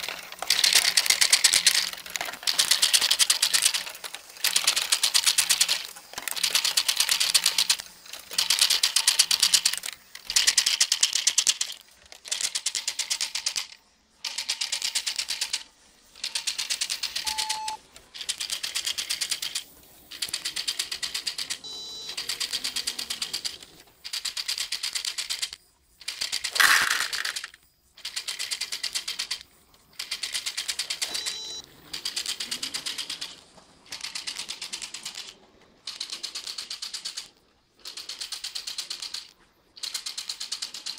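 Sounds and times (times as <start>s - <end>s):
rapid plastic clicking: 0.0s - 40.9s
loud plastic clatter: 26.5s - 27.6s.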